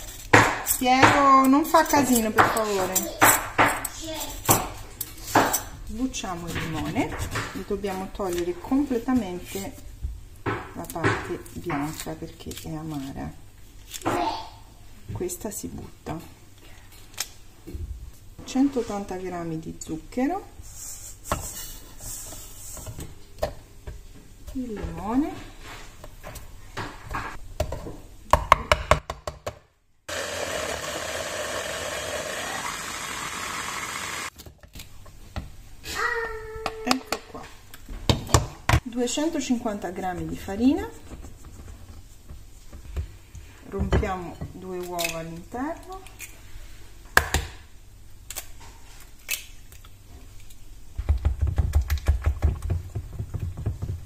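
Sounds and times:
electric chopper running: 0:30.1 - 0:34.3.

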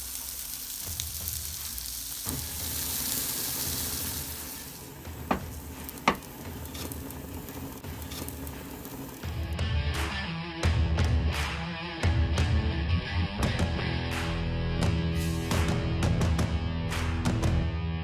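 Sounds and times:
food sizzling on a grill: 0:00.0 - 0:09.5.

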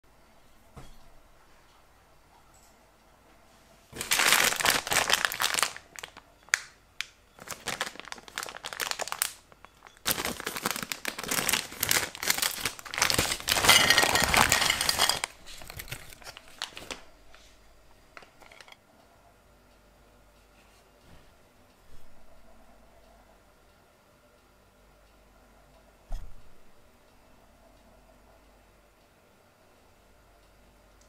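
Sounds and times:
plastic candy bag crinkling: 0:03.9 - 0:17.5, 0:18.1 - 0:18.8.

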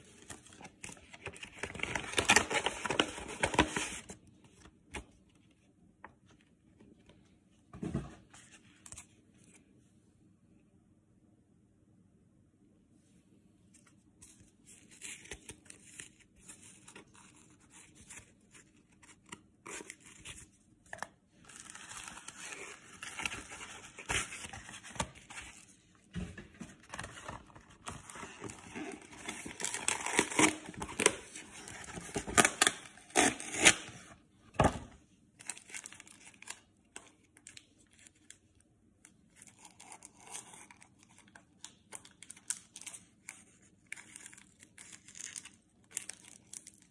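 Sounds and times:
packaging crinkling and tearing: 0:00.0 - 0:04.2, 0:21.4 - 0:25.7, 0:26.8 - 0:34.0, 0:35.4 - 0:38.4, 0:39.3 - 0:46.9.

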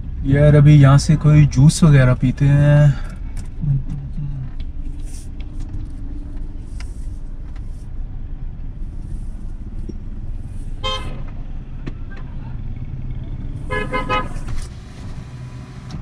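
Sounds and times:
engine and tyre rumble in car: 0:00.0 - 0:16.0.

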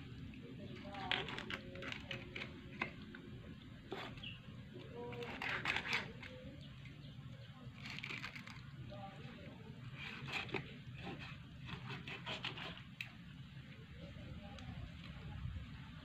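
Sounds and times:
knife slicing fish: 0:05.1 - 0:06.3, 0:10.0 - 0:12.8.

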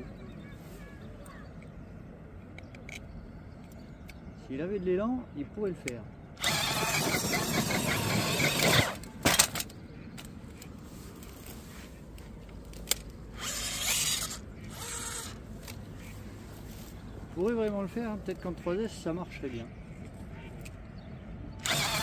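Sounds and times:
electric motor whining: 0:06.4 - 0:09.0, 0:13.4 - 0:15.4, 0:21.6 - 0:22.0
toy truck knocking: 0:06.5 - 0:09.7.

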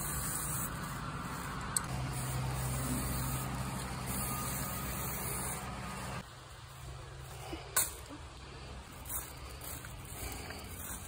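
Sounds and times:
spray paint hissing: 0:00.0 - 0:06.3, 0:08.9 - 0:11.0.

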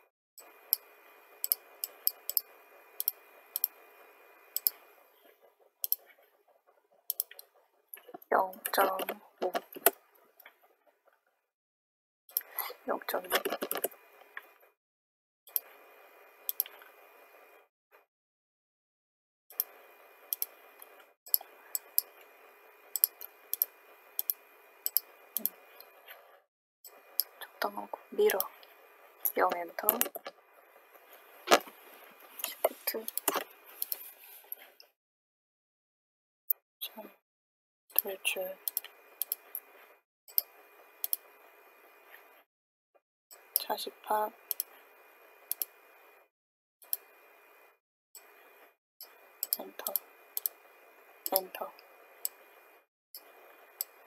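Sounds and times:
computer mouse clicks: 0:00.4 - 0:03.8, 0:04.6 - 0:04.8, 0:07.1 - 0:10.0, 0:16.5 - 0:17.0, 0:19.5 - 0:22.3, 0:23.0 - 0:25.9, 0:32.4 - 0:34.1, 0:38.0 - 0:39.7, 0:40.3 - 0:41.3, 0:44.5 - 0:44.7, 0:45.5 - 0:45.8, 0:49.0 - 0:50.6, 0:51.2 - 0:52.4.

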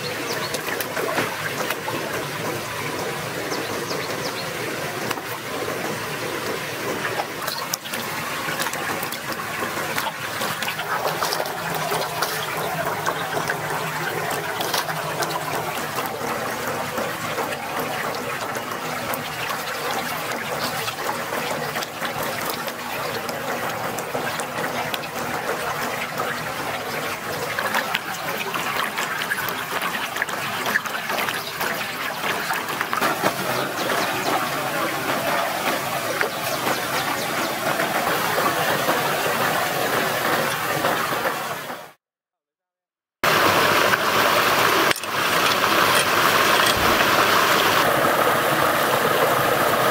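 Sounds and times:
water splashing from hand washing: 0:00.0 - 0:41.6, 0:43.2 - 0:49.9
stream running over rocks: 0:00.0 - 0:42.0, 0:43.2 - 0:49.9.

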